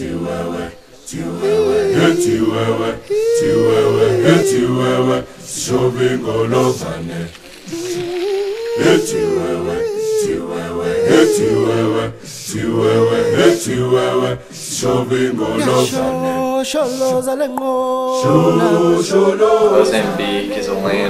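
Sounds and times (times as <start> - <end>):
group singing in harmony: 0.0 - 17.4, 18.1 - 21.0
singers breathing: 0.7 - 5.6, 14.4 - 14.8.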